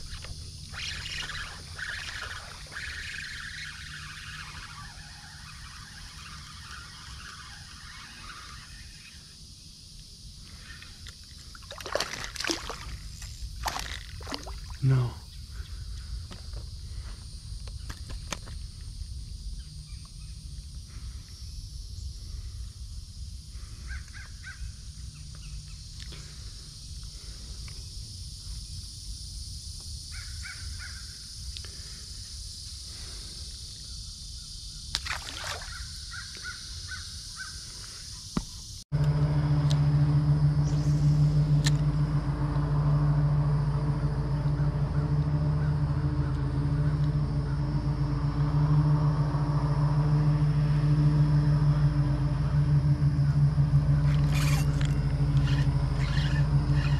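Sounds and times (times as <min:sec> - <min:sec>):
steady low hum: 0:00.0 - 0:56.9
low wind rumble: 0:39.0 - 0:56.9.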